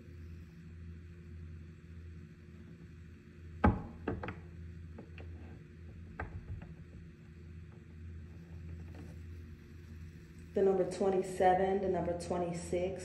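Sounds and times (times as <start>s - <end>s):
low hum: 0.0s - 13.0s
sharp clicks and knocks: 5.9s - 7.0s.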